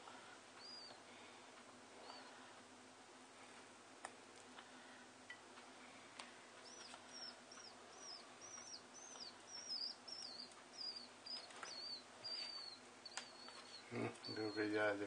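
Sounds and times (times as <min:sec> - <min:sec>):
nestling bird chirping: 0:00.6 - 0:01.3, 0:02.0 - 0:02.6, 0:06.6 - 0:15.0.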